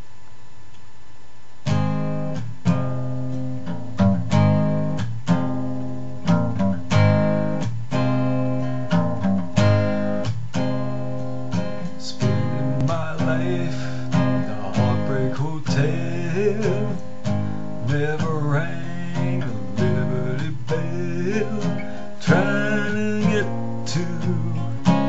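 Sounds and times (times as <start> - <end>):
guitar strumming chords: 1.6 - 25.0.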